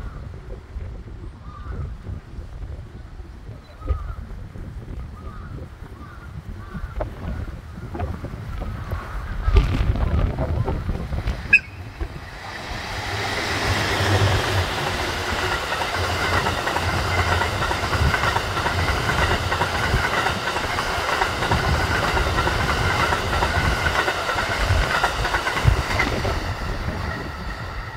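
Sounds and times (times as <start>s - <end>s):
train passing rumble: 5.7s - 27.9s
wheels clacking over rail joints: 7.9s - 27.9s.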